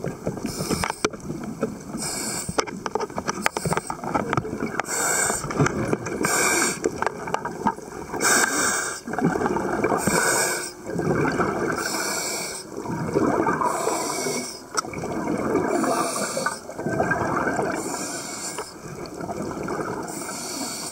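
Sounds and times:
regulator hissing inhale: 0.4s - 1.1s, 2.0s - 2.6s, 4.8s - 5.5s, 6.2s - 6.9s, 8.2s - 9.1s, 10.0s - 10.8s, 11.8s - 12.8s, 13.6s - 14.8s, 15.8s - 16.7s, 17.8s - 18.8s, 20.1s - 20.9s
gurgling exhaled bubbles: 3.9s - 20.9s.

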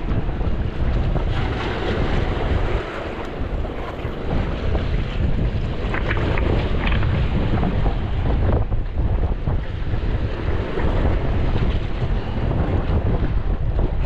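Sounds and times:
sea surging against jetty: 0.0s - 14.0s
wind buffeting microphone: 0.0s - 14.0s.

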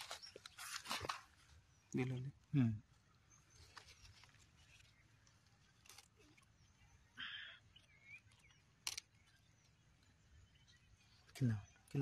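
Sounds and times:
brief rustle: 0.0s - 1.4s.

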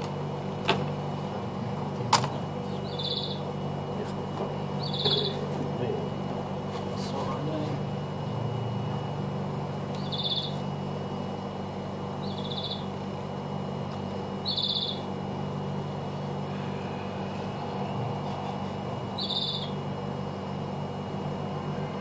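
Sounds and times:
low electrical hum: 0.0s - 22.0s
bird chirping: 2.3s - 3.5s, 4.8s - 5.4s, 9.9s - 10.6s, 12.2s - 12.9s, 14.4s - 15.1s, 19.2s - 19.8s.

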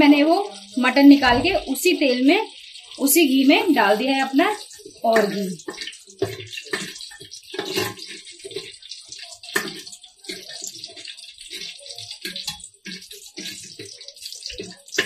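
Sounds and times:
meat sizzling in hot fat: 0.0s - 15.0s
metal spoon scraping a pot: 4.2s - 15.0s.

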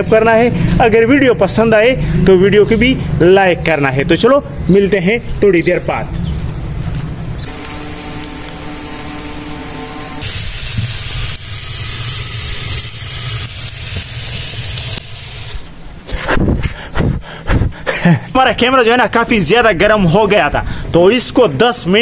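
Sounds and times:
meat sizzling on hot coals: 7.5s - 16.0s.

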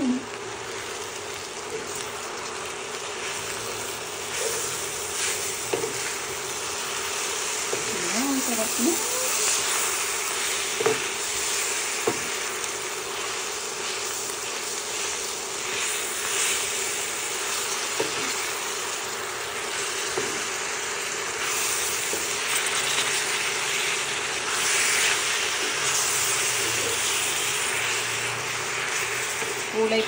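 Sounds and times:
food sizzling in a skillet: 0.0s - 30.0s
spoon knocking on pan: 12.0s - 12.3s.

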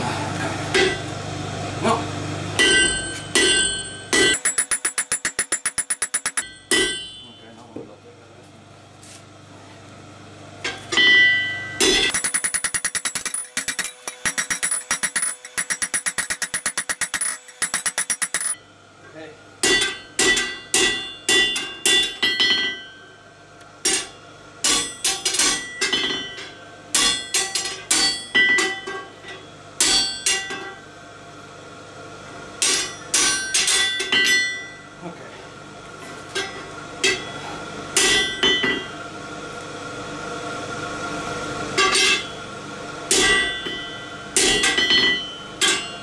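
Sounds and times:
hammer ringing on hot metal bar: 2.6s - 7.4s, 12.1s - 18.6s.

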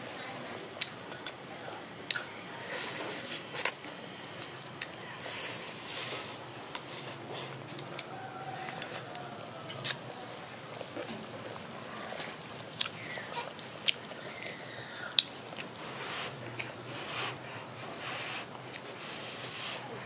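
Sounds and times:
chewing: 2.1s - 17.6s
slurping soup: 5.2s - 7.6s, 12.0s - 20.0s.

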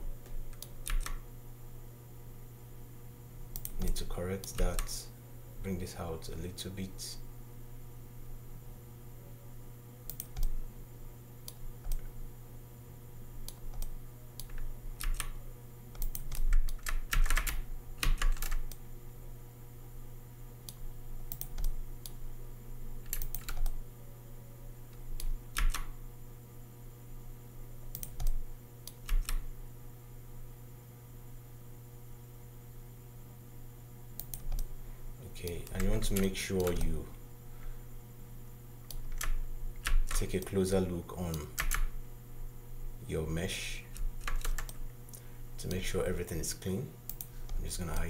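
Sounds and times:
steady low hum: 0.0s - 48.0s
keyboard keys clicking: 0.5s - 1.2s, 13.5s - 15.4s, 16.0s - 18.8s, 23.1s - 23.8s, 25.2s - 25.9s, 41.3s - 41.9s, 44.0s - 44.8s.

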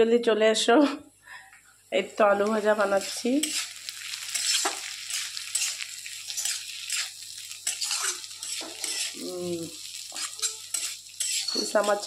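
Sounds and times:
light sizzle of frying: 1.2s - 12.0s
spatula scraping metal pan: 3.0s - 9.2s, 10.0s - 12.0s.

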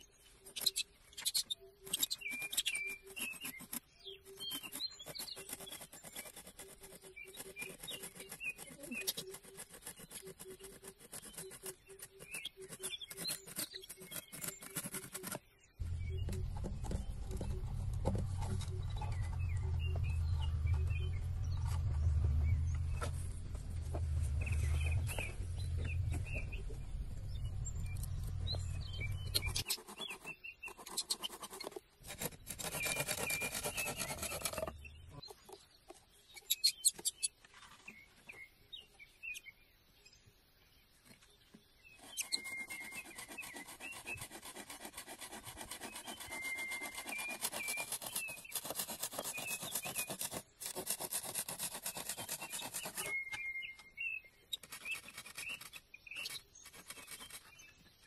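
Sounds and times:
small birds chirping: 0.0s - 58.0s
scraping and clicks: 0.5s - 35.6s, 54.5s - 57.7s
hand saw cutting bamboo: 2.0s - 15.4s, 29.4s - 34.7s, 42.0s - 53.2s, 54.6s - 57.6s
low rumble: 15.8s - 29.6s.

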